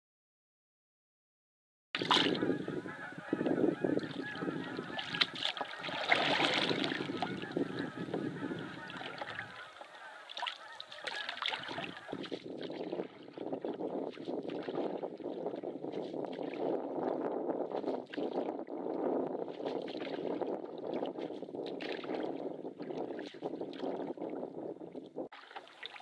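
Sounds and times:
geese honking: 2.4s - 12.2s.

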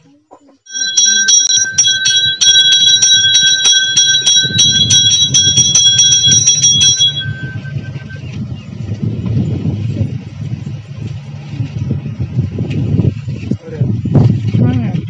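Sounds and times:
hand bell rung rapidly: 0.7s - 8.2s.

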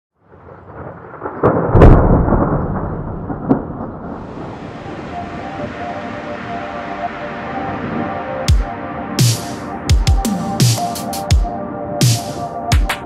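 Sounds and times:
thunder rumbling and cracking: 0.2s - 6.6s
rain hissing: 4.0s - 8.5s.

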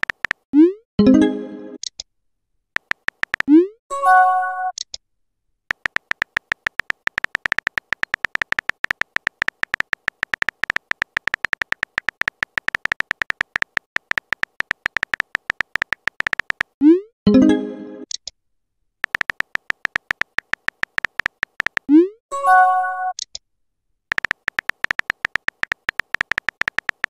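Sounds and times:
electronic typing clicks: 0.0s - 0.7s, 2.8s - 3.7s, 5.7s - 16.8s, 19.0s - 22.1s, 24.1s - 27.0s.

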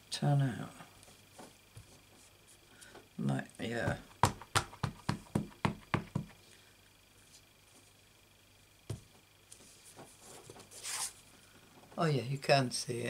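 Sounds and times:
stamp knocking on ink pad: 3.9s - 6.4s.

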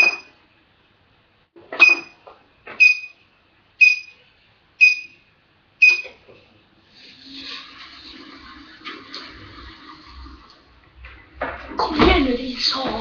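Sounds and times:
treadmill console beeping: 0.0s - 0.4s, 1.7s - 3.2s, 3.8s - 4.2s, 4.8s - 6.3s.

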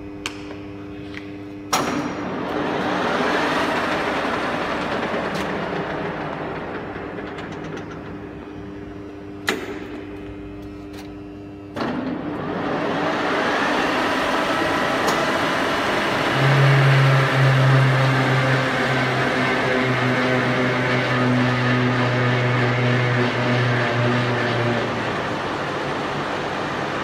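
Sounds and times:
deep loud hum: 0.0s - 27.0s
boring machine drive whirring: 1.6s - 27.0s
machine clunk: 1.7s - 2.5s, 3.6s - 8.8s, 9.4s - 10.3s, 11.7s - 12.6s.

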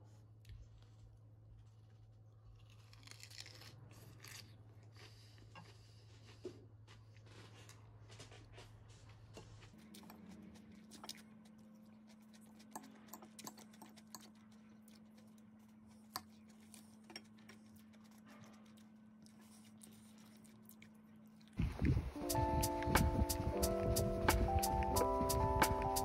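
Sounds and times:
low steady hum: 0.0s - 26.0s.

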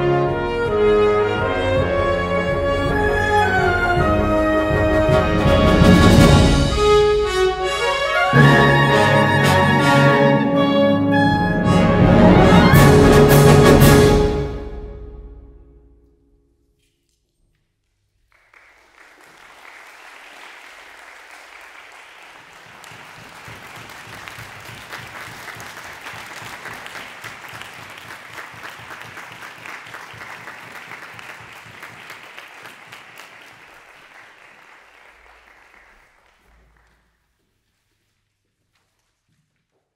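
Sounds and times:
audience applauding: 18.2s - 37.2s.

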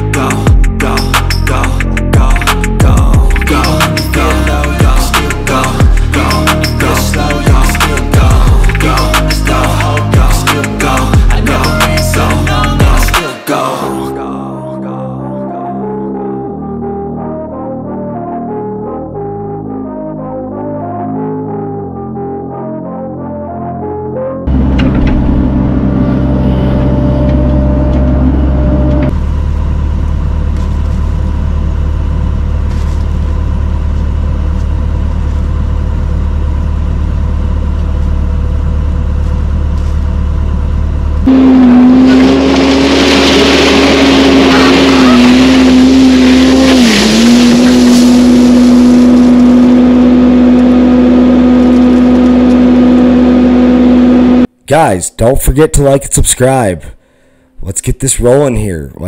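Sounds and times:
mini excavator diesel engine: 24.5s - 54.5s
loader engine whining: 24.5s - 54.6s.

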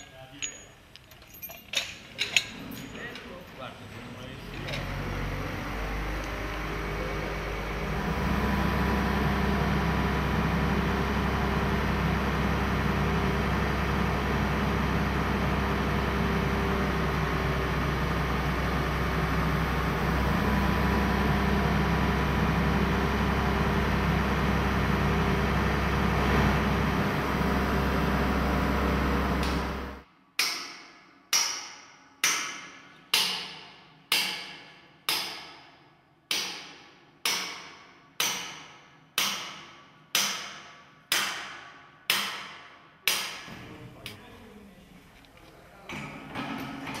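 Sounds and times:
crane engine droning: 2.6s - 30.0s.

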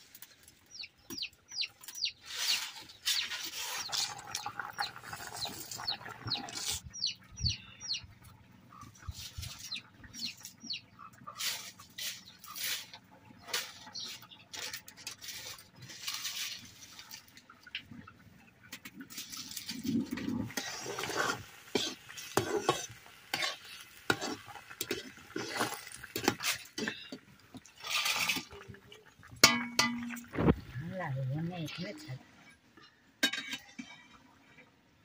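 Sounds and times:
metal spatula stirring in metal pan: 18.8s - 30.4s, 33.2s - 34.1s.

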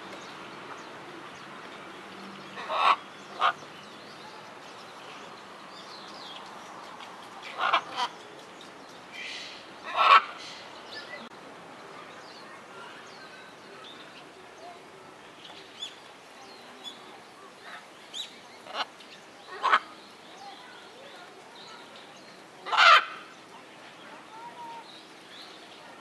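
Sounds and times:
small birds chirping: 0.0s - 11.3s, 11.9s - 26.0s
macaws squawking: 22.7s - 23.2s.

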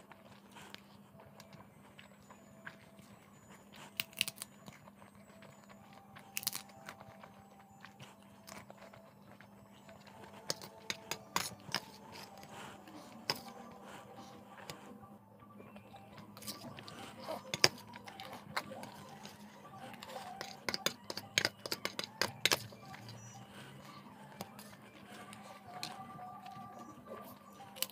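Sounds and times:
crisp snack crunching: 3.7s - 13.6s.

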